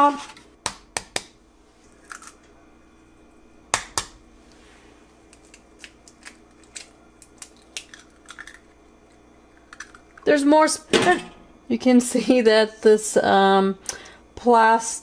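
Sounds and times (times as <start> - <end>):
eggshells cracking: 1.9 - 2.4, 5.3 - 10.3.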